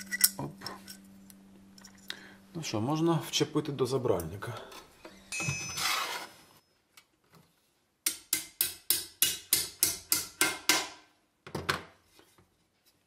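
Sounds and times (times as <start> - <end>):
small hammer tapping metal: 8.0 - 10.9.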